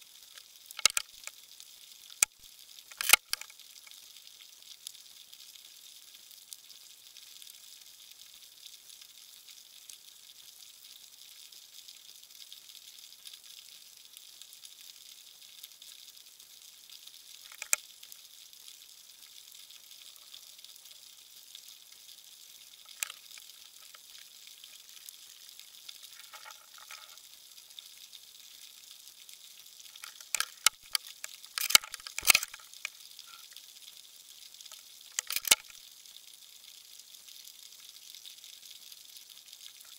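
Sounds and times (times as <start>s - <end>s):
underwater clicks and knocks: 0.8s - 1.3s, 2.2s - 3.5s, 17.5s - 17.8s, 22.9s - 24.0s, 26.2s - 27.2s, 30.0s - 32.9s, 35.2s - 35.7s.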